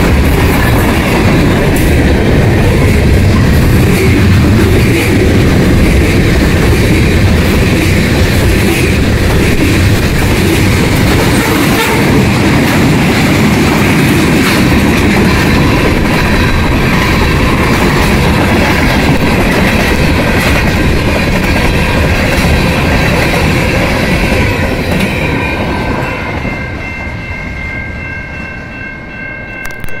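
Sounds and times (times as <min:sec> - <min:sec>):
freight train rumbling: 0:00.0 - 0:30.0
crossing signal ringing: 0:24.3 - 0:30.0.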